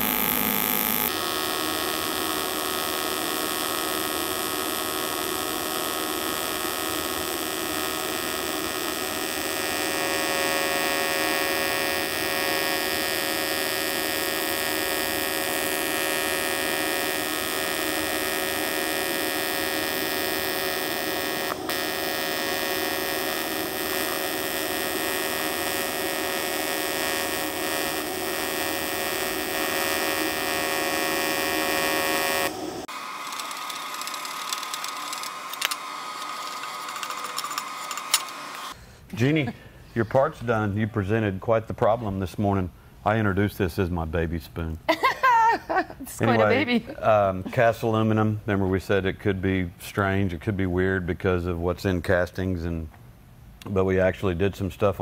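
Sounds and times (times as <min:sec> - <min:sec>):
welding arc buzz: 0:00.0 - 0:38.8, 0:44.9 - 0:48.0.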